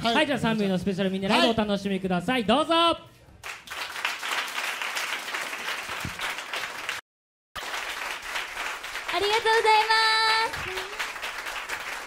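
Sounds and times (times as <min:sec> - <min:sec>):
audience applauding: 0:03.4 - 0:07.0, 0:07.6 - 0:12.0.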